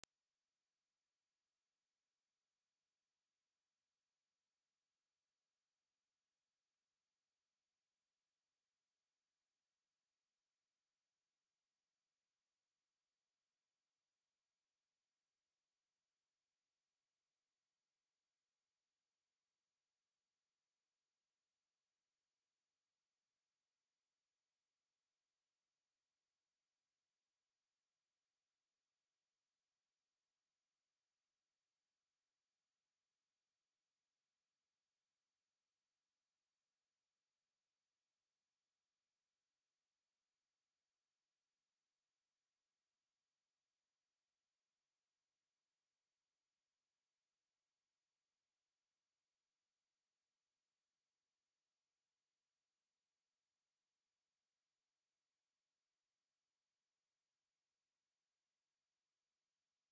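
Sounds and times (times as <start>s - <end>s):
high-pitched sine test tone: 0.0s - 2.0s.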